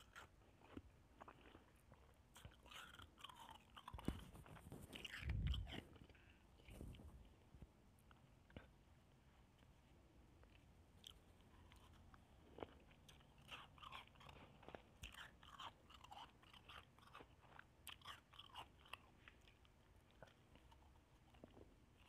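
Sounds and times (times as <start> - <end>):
ice being crunched and chewed: 0.0 - 6.4, 11.0 - 22.0.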